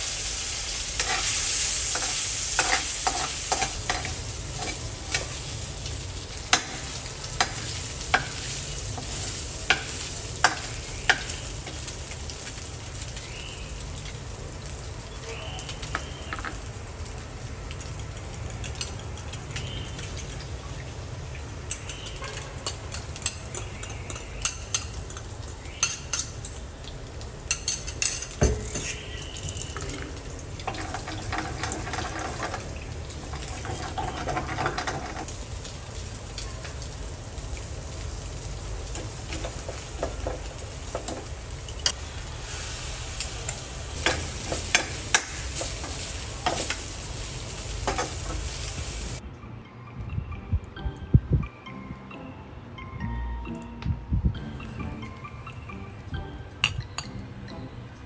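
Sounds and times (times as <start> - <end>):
food stir-frying in a wok: 0.0 - 49.2
metal ladle clinking and scraping: 1.0 - 5.4, 27.5 - 32.6.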